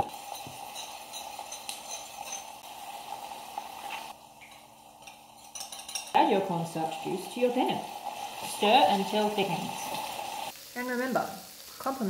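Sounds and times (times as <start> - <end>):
soft sizzle in skillet: 0.0 - 12.0
spoon stirring in ceramic bowl: 0.2 - 2.5.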